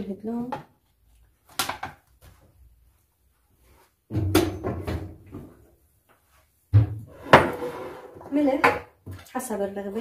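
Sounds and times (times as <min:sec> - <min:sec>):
kitchen items clattering and bumping: 0:04.1 - 0:05.6, 0:06.7 - 0:09.3.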